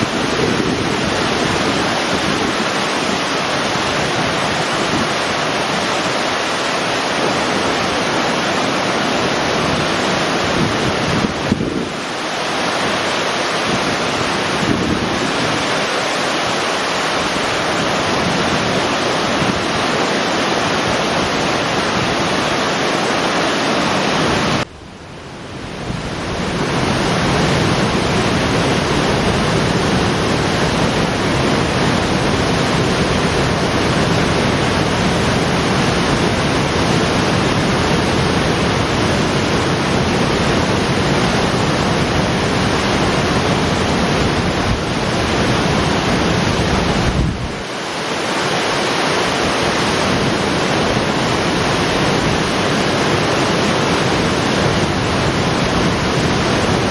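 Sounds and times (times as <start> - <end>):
water rushing over concrete: 0.0 - 56.9.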